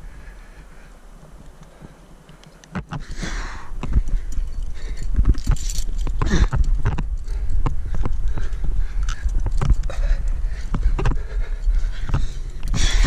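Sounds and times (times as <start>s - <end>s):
wind rumbling on microphone: 0.0s - 13.0s
climbing gear clinking: 2.3s - 13.0s
climber knocking and scraping on rock: 5.1s - 10.0s.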